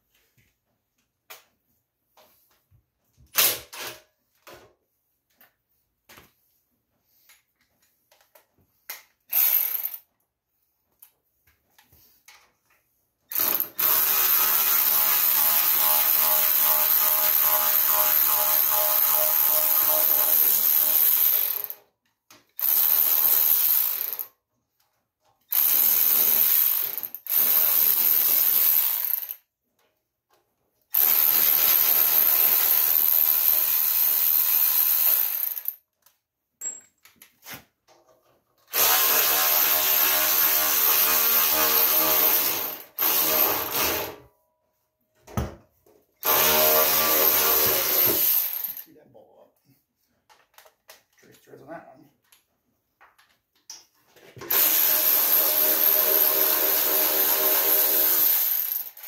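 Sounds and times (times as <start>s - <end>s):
electric ratchet whirring: 9.3s - 10.0s, 13.3s - 21.8s, 22.6s - 24.3s, 38.7s - 44.2s, 46.2s - 48.8s, 54.5s - 59.0s.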